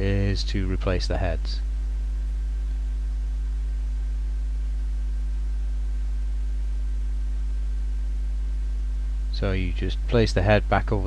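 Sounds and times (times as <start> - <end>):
low mains hum: 0.0 - 11.0.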